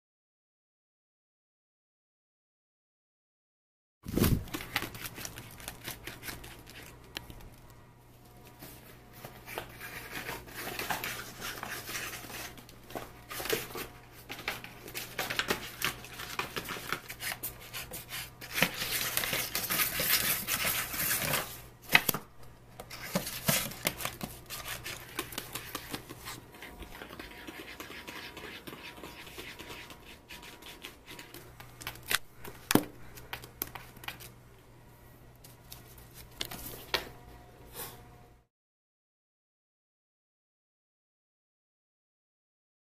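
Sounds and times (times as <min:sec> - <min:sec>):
kitten scratching a book: 0:04.1 - 0:07.4, 0:09.2 - 0:21.6, 0:22.8 - 0:32.1
paper rustling: 0:04.1 - 0:22.2, 0:22.8 - 0:34.3.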